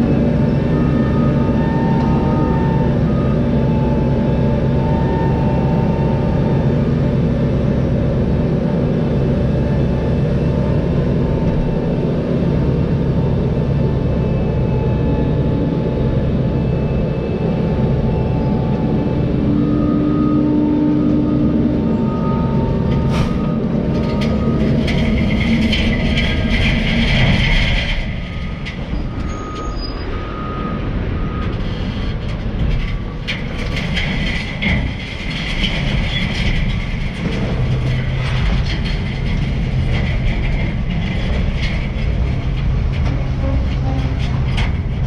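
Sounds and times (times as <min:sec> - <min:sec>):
truck engine rumbling: 0:00.0 - 0:45.0
metal rattling and clanking: 0:21.8 - 0:29.9, 0:31.4 - 0:45.0.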